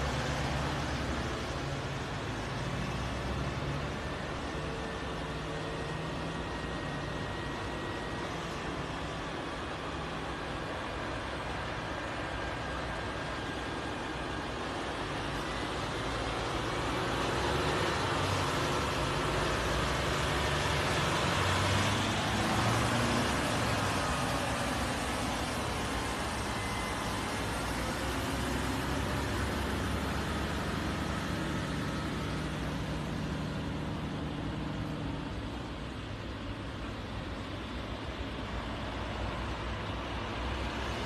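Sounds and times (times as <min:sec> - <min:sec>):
cars passing: 0:00.0 - 0:41.0
diesel truck engines droning: 0:00.0 - 0:41.0.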